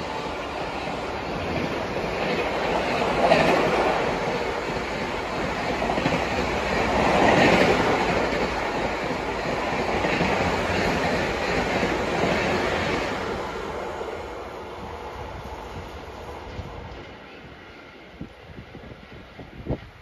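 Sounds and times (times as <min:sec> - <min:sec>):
train wheels clattering over track: 0:00.0 - 0:13.5.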